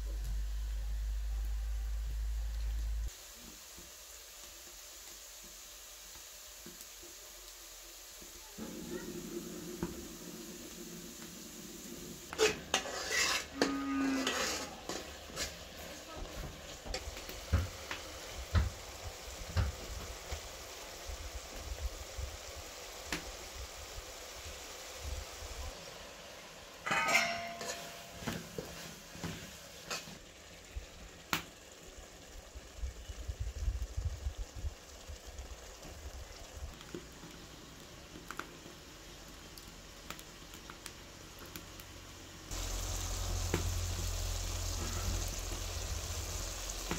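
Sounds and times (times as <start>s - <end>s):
food sizzling: 0.0s - 46.9s
metal spatula scraping a pan: 12.3s - 16.1s, 26.8s - 30.2s
metal spatula clanging on pot: 26.8s - 28.3s.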